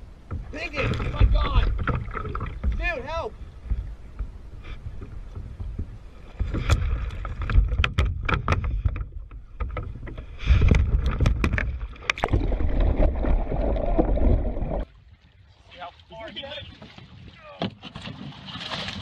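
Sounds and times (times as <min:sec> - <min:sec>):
water splashing against kayak: 0:00.0 - 0:19.0
knocks on hull and paddle: 0:00.3 - 0:03.0, 0:05.4 - 0:13.2.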